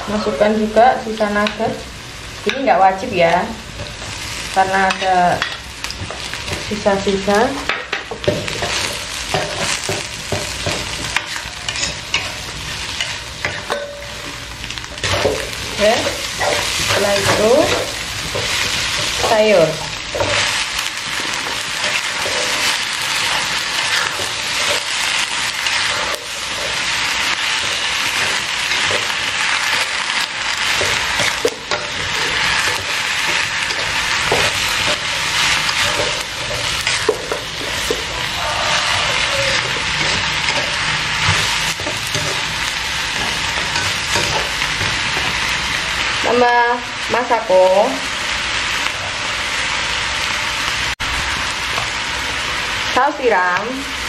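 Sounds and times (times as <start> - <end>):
vegetables sizzling in a wok: 0.0 - 54.0
metal spatula scraping a pan: 8.2 - 14.4, 15.0 - 46.0.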